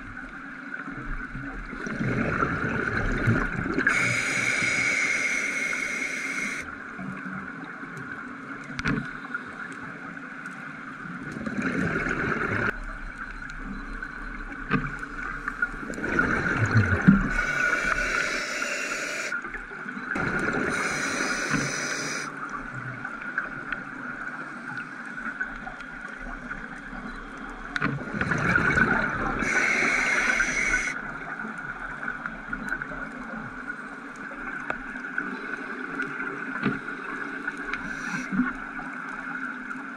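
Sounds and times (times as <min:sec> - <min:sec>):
exhaled bubbles gurgling: 0:01.3 - 0:06.7, 0:14.9 - 0:23.7, 0:28.0 - 0:32.1
regulator hiss: 0:03.9 - 0:06.6, 0:17.2 - 0:19.4, 0:20.6 - 0:22.3, 0:29.4 - 0:31.0, 0:37.8 - 0:38.3.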